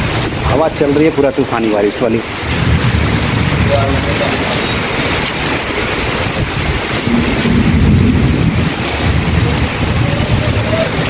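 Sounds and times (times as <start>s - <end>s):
heavy rain pouring: 0.0s - 11.0s
wind gusting against microphone: 2.2s - 11.0s.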